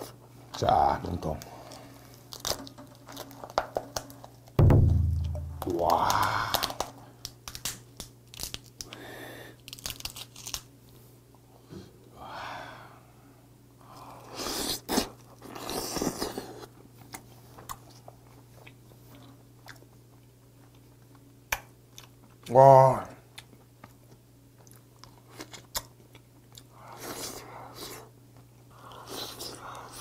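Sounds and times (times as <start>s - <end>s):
crab shell cracking: 2.2s - 9.0s, 9.6s - 10.7s
chewing: 14.2s - 21.3s, 23.3s - 30.0s.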